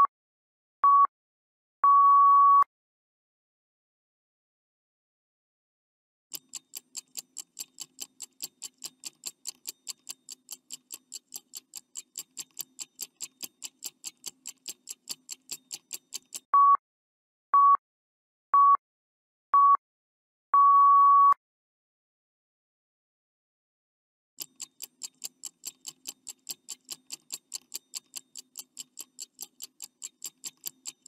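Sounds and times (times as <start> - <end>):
clock ticking: 6.3 - 16.5, 24.4 - 31.0
long timer beep: 20.6 - 21.4.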